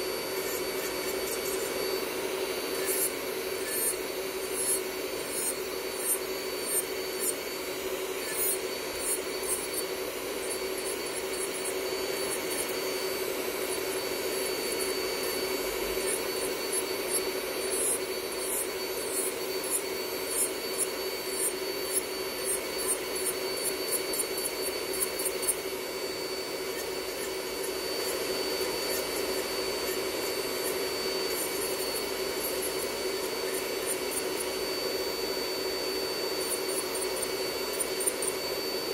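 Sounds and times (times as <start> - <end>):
drill grinding nail polish: 0.0 - 38.9
nail drill whining: 0.0 - 38.9.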